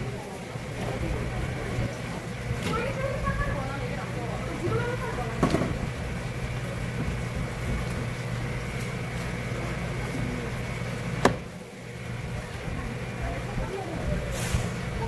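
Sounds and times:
low machine hum: 0:00.0 - 0:15.0
sharp knocks: 0:11.2 - 0:11.5.

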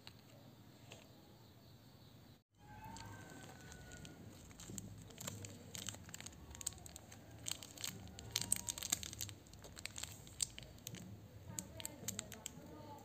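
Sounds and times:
plastic wrapper crinkling: 0:02.6 - 0:13.0.

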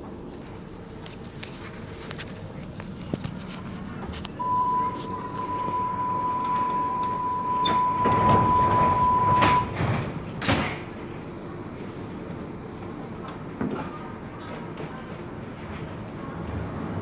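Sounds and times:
train car rumble: 0:00.0 - 0:17.0
warning beep: 0:04.4 - 0:09.8
train doors knocking shut: 0:07.0 - 0:10.9.

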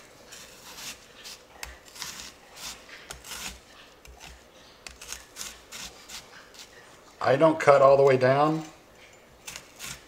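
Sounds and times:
knife slicing shallot on board: 0:00.3 - 0:06.7, 0:09.4 - 0:10.0.

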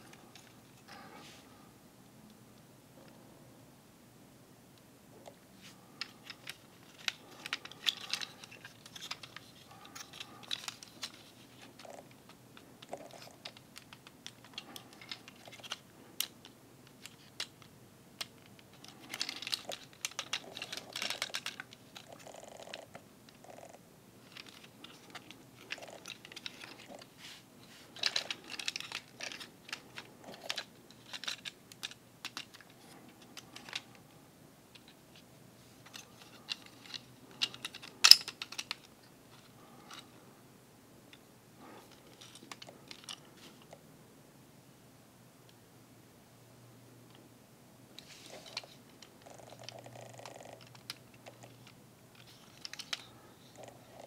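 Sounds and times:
light handling noise: 0:24.2 - 0:40.1, 0:48.0 - 0:54.0.

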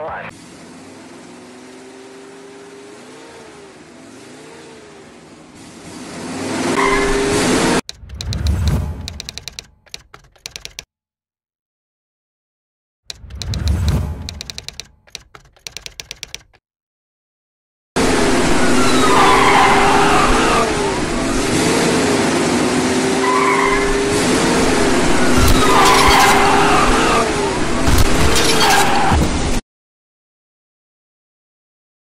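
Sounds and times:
car engine running hard: 0:00.3 - 0:07.8, 0:18.0 - 0:28.3
typewriter-like clicking: 0:07.9 - 0:10.9, 0:13.1 - 0:16.6
tyres squealing: 0:23.2 - 0:27.4.

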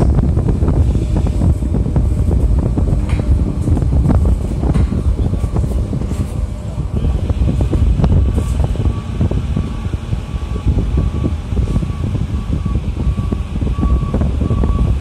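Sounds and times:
train rumbling: 0:00.0 - 0:15.0
wind on microphone: 0:00.0 - 0:15.0
reversing alarm beeping: 0:07.4 - 0:15.0.

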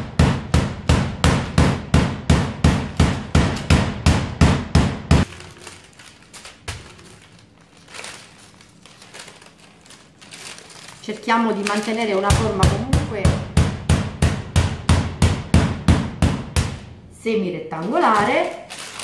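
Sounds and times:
paper rustling: 0:05.2 - 0:12.6, 0:17.8 - 0:19.0.

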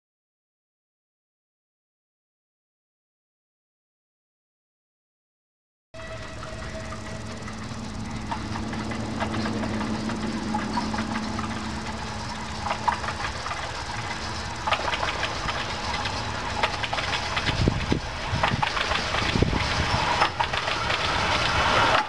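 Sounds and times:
steam locomotive chuffing: 0:06.0 - 0:22.0
train wheels clicking: 0:06.0 - 0:22.0.

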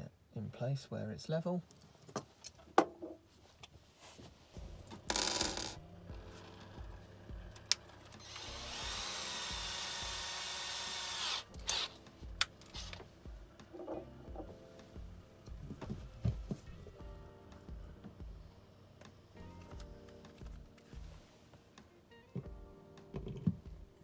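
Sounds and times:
cordless drill running: 0:08.2 - 0:12.0.

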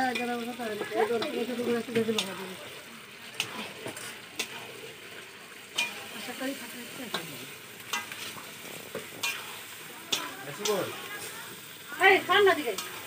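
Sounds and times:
food sizzling: 0:00.0 - 0:13.0
metal spatula clinking against pot: 0:03.4 - 0:04.7, 0:05.7 - 0:11.4, 0:12.5 - 0:13.0.

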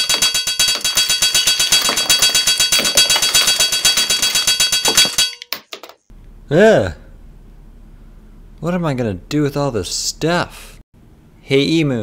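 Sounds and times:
hammer striking metal: 0:00.0 - 0:05.5.

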